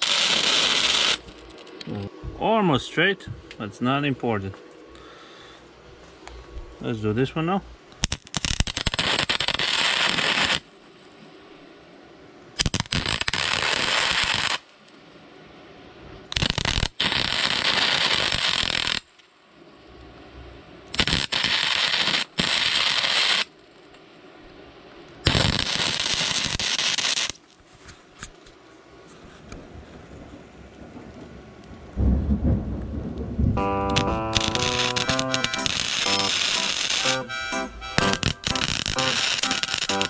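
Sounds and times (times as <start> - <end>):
welding bursts: 0.0 - 2.0, 8.0 - 10.7, 12.6 - 14.7, 16.3 - 19.1, 20.9 - 23.5, 25.2 - 27.4, 33.6 - 40.0.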